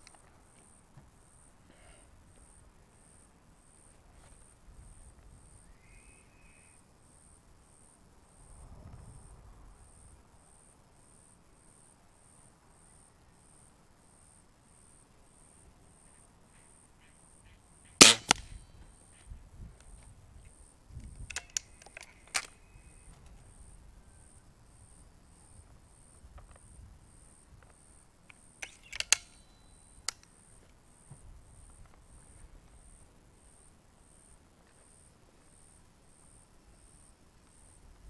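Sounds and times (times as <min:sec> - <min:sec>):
air rifle metallic clicks: 0:18.0 - 0:18.6, 0:21.0 - 0:22.6, 0:28.3 - 0:30.3.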